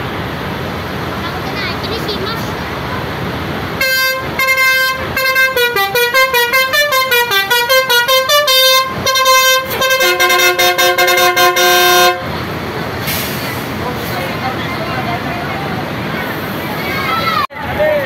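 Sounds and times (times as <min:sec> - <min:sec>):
musical air horn playing tune: 0:03.8 - 0:12.3.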